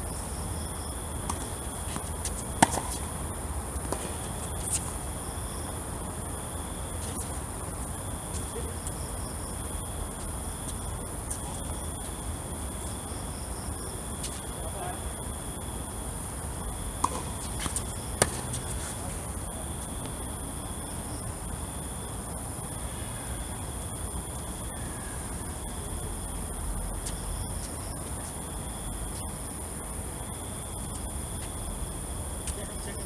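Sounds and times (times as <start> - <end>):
insects trilling: 0.0 - 33.0
tennis ball struck with racket: 17.0 - 18.4.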